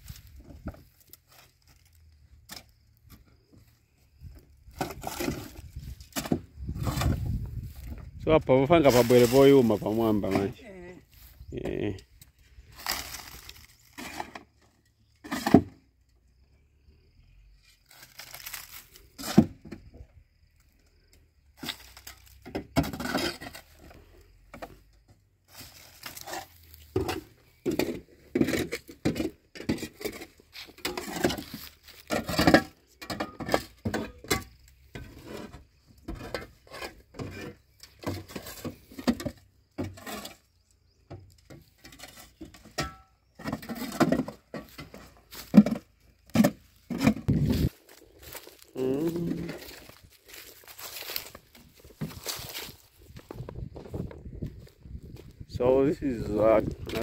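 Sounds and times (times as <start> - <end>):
shovel scraping metal bed: 4.8 - 7.5, 12.7 - 14.5, 15.2 - 15.8, 21.6 - 23.9, 25.5 - 40.5, 41.8 - 48.6.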